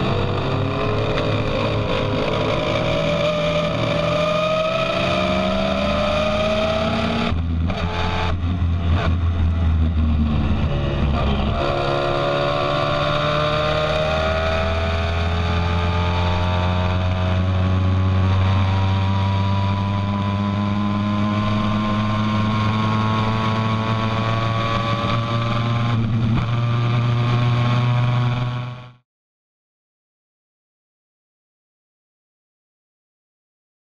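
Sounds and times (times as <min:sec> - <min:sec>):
race car engine running hard: 0:00.0 - 0:28.8.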